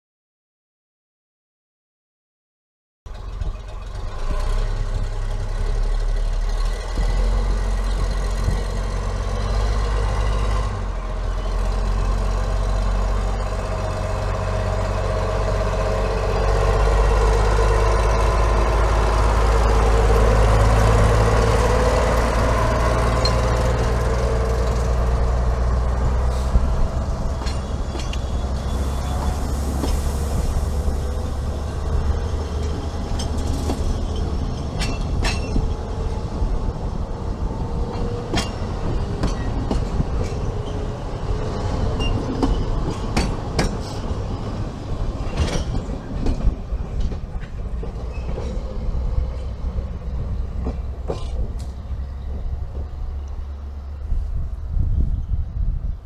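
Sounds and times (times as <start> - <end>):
diesel locomotive engine drone: 3.1 - 56.0
train coaches rolling past: 3.1 - 56.0
train wheels clicking: 16.8 - 28.6, 37.8 - 53.4.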